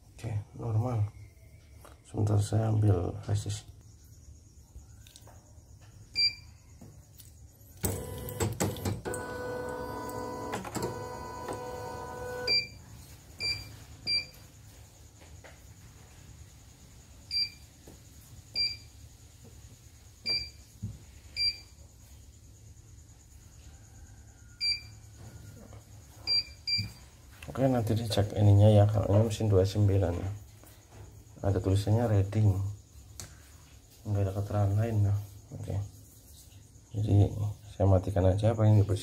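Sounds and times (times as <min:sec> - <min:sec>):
embroidery machine electric whirr: 0:07.8 - 0:12.5
high key-press beeps: 0:10.1 - 0:12.8.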